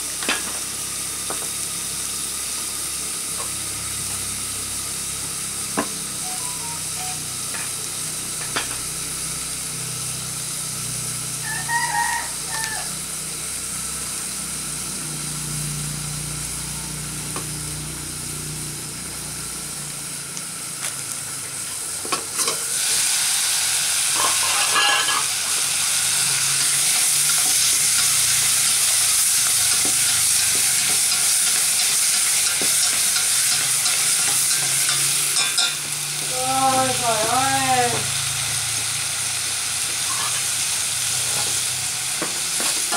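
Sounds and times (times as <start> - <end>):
vegetables sizzling in hot pot: 0.0 - 42.9
rooster crowing: 11.4 - 13.1
wood fire crackling: 17.2 - 22.0.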